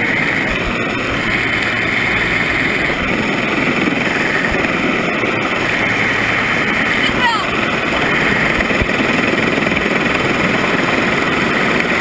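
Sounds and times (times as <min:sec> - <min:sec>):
helicopter rotor and engine: 0:00.0 - 0:12.0.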